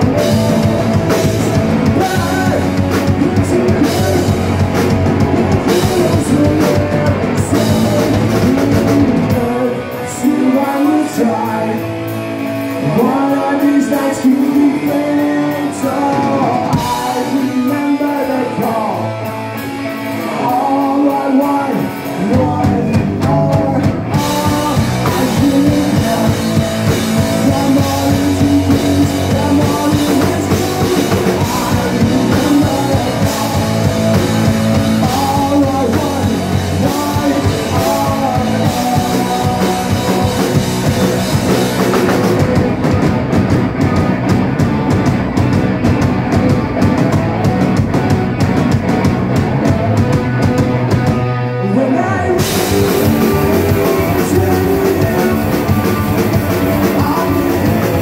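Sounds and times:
person singing: 0.0 - 19.4, 20.0 - 44.0, 51.6 - 58.0
bass guitar: 0.0 - 58.0
distorted electric guitars: 0.0 - 58.0
drum kit: 0.0 - 58.0.

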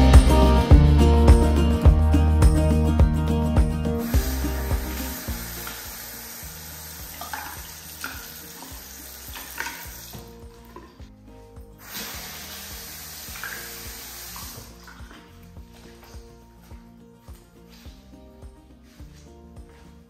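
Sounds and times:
faucet running into sink: 4.0 - 10.4, 11.8 - 15.3.

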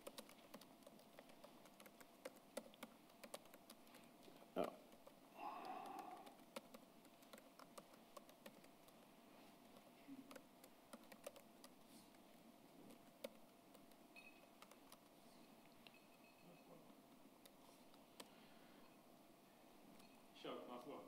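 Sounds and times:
keyboard keys clicking: 0.0 - 3.8, 4.6 - 9.0, 9.7 - 11.8, 12.9 - 15.2.

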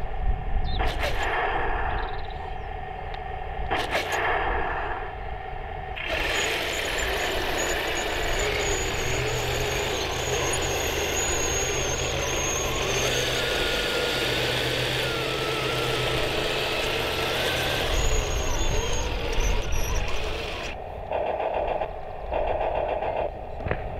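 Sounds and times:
model tank motor whining: 5.9 - 20.8.

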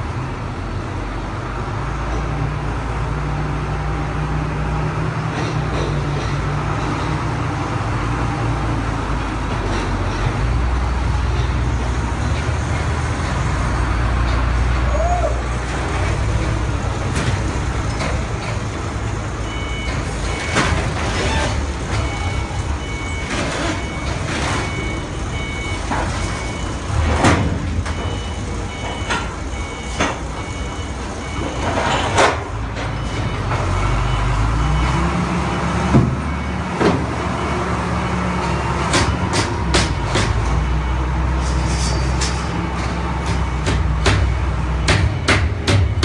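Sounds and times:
two-tone reversing alarm beeping: 19.4 - 20.8, 21.8 - 27.1, 27.8 - 32.2, 32.8 - 41.4, 43.2 - 46.0
sharp knocks and bangs: 19.8 - 30.6, 35.8 - 37.3, 38.5 - 40.9, 42.0 - 46.0.

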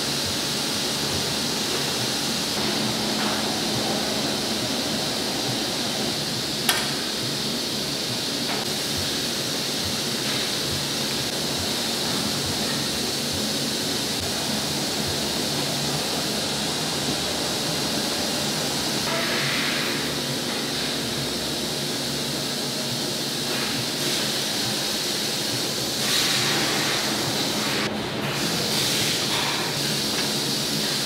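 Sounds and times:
factory equipment rushing: 0.0 - 31.0.

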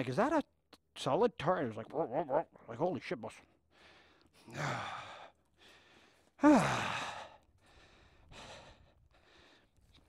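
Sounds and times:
man breathing: 3.6 - 10.0
man sighing heavily: 4.4 - 5.3, 6.4 - 7.4.

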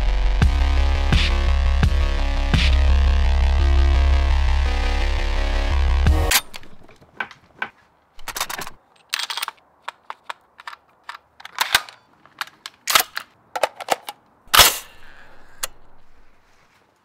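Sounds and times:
plastic and metal clicks and clacks: 6.3 - 14.7.

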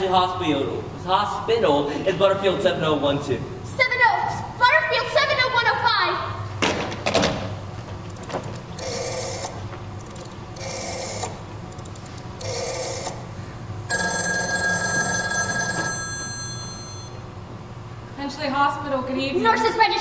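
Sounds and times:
telephone ringing: 8.8 - 9.6, 10.6 - 11.4, 12.4 - 13.2, 13.9 - 17.3.

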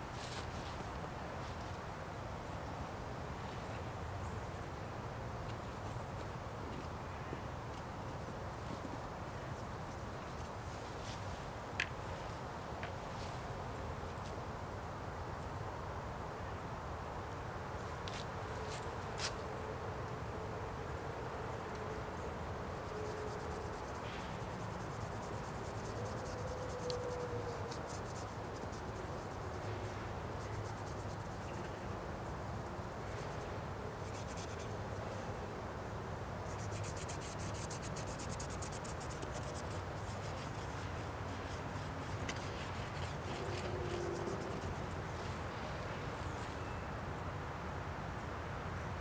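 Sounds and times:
outdoor background hiss: 0.0 - 49.0
paintbrush scratchy strokes: 22.8 - 32.4, 33.0 - 34.8, 36.4 - 45.4.

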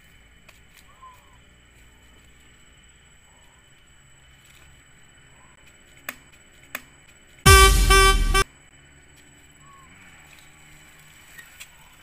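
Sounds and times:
loud horn toot: 7.5 - 8.4.

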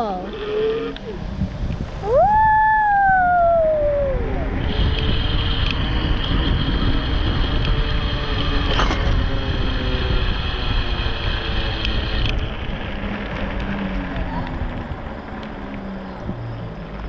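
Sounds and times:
wind rushing over microphone: 0.0 - 17.0
electric motor whine: 3.3 - 17.0.

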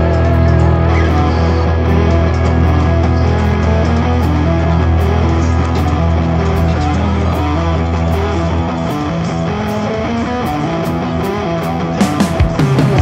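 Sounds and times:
deep bass: 0.0 - 13.0
rock music with guitar: 0.0 - 13.0.

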